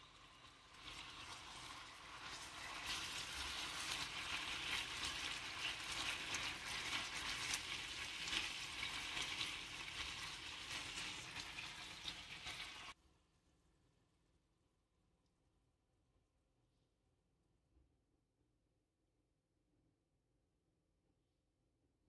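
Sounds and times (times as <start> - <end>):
meat sizzling in grill pan: 0.0 - 13.0.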